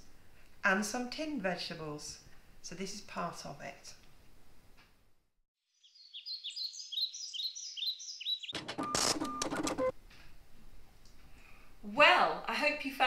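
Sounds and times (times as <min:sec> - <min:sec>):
songbird chirping: 0:05.7 - 0:08.6.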